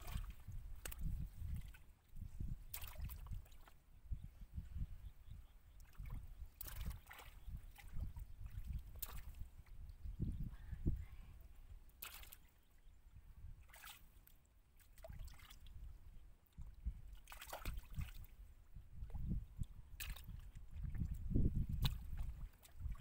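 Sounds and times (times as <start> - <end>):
hands splashing in water: 2.7 - 3.7, 5.9 - 9.4, 12.0 - 12.5.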